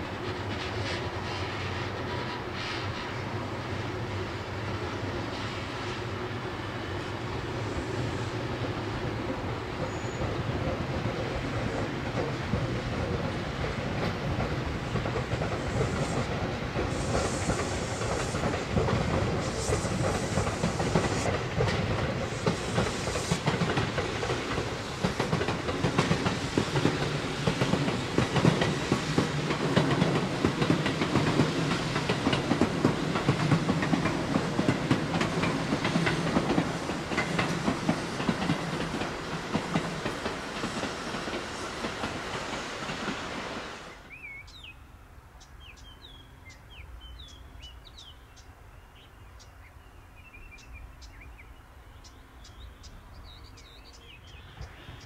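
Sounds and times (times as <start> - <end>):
train rumbling on rails: 0.0 - 55.0
wheels clacking over rail joints: 9.0 - 43.5.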